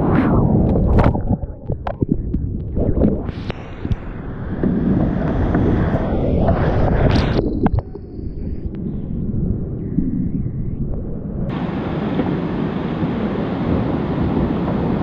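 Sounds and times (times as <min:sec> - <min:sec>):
wind buffeting microphone: 0:00.0 - 0:15.0
whitewater rushing: 0:11.5 - 0:15.0.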